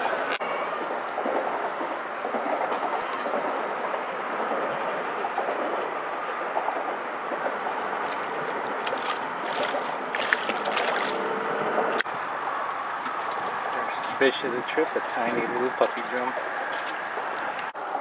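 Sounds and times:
steady rushing noise: 0:00.0 - 0:18.0
fish splashing at water surface: 0:07.9 - 0:12.0.

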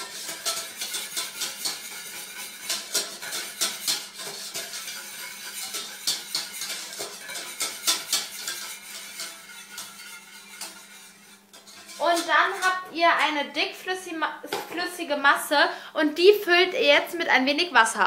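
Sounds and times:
whisk clinking and scraping pan: 0:00.0 - 0:13.5.

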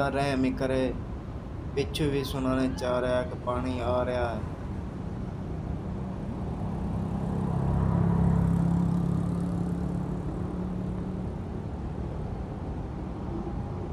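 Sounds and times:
wind: 0:00.0 - 0:13.9
vehicle engine passing: 0:06.3 - 0:11.5.

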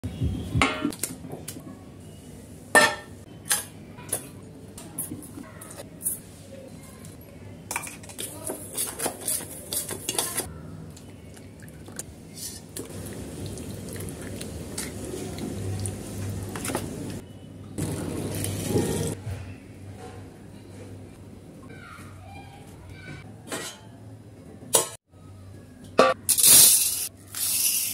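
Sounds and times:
stirring wet marinade: 0:10.9 - 0:17.2.

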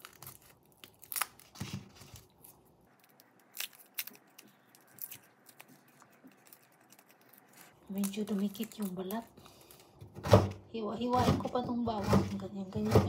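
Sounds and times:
garlic skin crackling: 0:00.0 - 0:10.0.

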